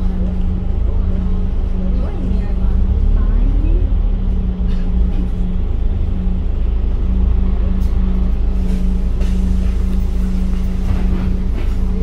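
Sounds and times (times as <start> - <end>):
bus diesel engine rumbling: 0.0 - 12.0.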